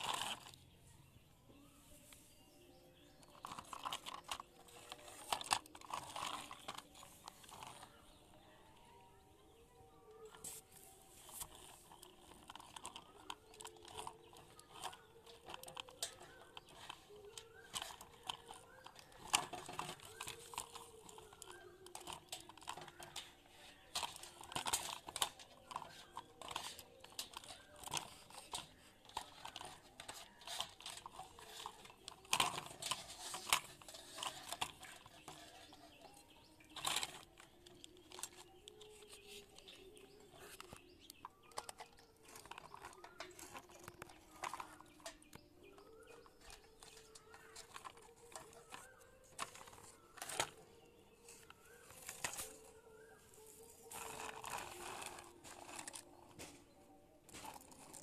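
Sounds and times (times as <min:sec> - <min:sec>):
plastic toys clicking: 0:00.0 - 0:01.0, 0:02.1 - 0:58.0.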